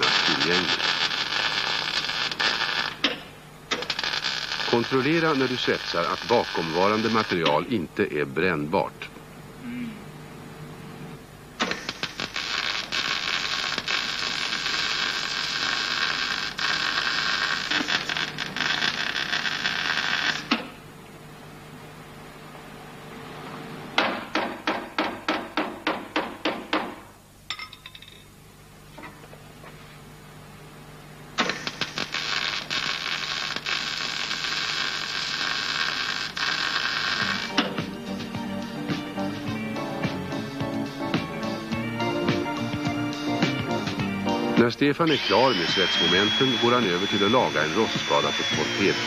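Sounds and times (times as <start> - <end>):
welding arc crackling: 0.0 - 7.8, 11.6 - 20.8, 31.4 - 39.5, 44.6 - 49.0.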